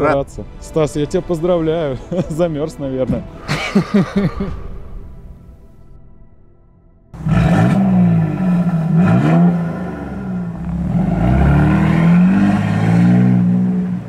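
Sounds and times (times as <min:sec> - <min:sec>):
car engine revving: 0:07.2 - 0:14.0.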